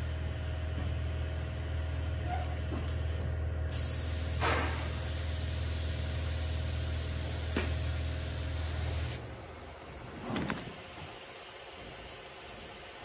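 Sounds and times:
glue gun spray hissing: 3.7s - 9.2s.

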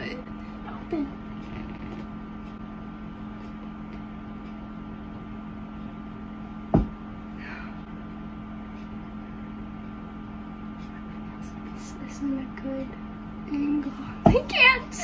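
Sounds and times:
steady background hum: 0.0s - 15.0s
sharp thump: 6.7s - 7.0s.

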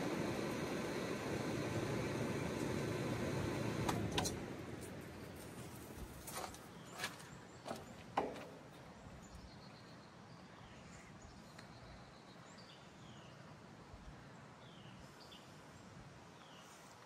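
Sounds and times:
fan coasting with low whir: 0.0s - 6.6s.

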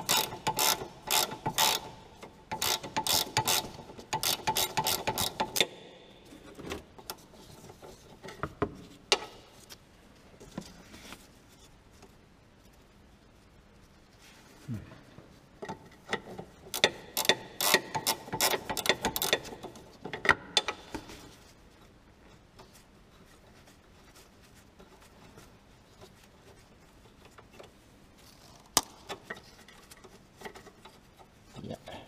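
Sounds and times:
ratchet wrench clicking: 0.0s - 5.8s, 16.7s - 19.6s.

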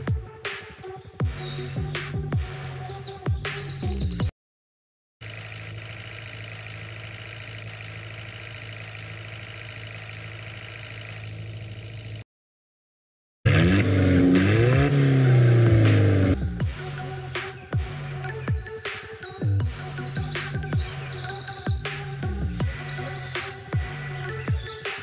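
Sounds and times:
engine revving: 5.2s - 12.2s, 13.4s - 17.5s
steady engine hum: 5.2s - 12.2s, 13.5s - 18.4s.

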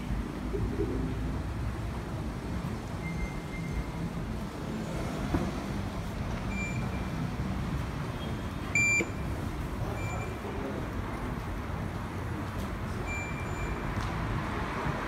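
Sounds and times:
faint high beep: 3.0s - 4.0s, 8.8s - 9.2s, 9.9s - 10.5s, 13.0s - 13.8s.

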